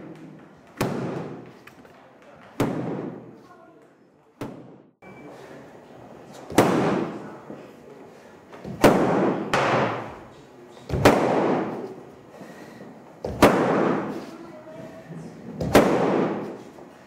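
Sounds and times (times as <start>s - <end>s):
stick smacking padded shield: 0.0s - 1.7s, 2.6s - 3.3s, 6.5s - 7.2s, 8.6s - 10.2s, 10.9s - 12.0s, 13.2s - 14.3s, 15.6s - 16.7s.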